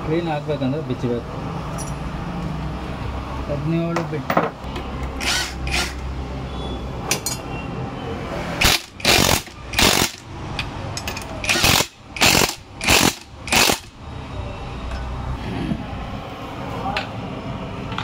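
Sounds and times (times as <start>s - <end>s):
impact wrench hammering: 8.6s - 14.0s.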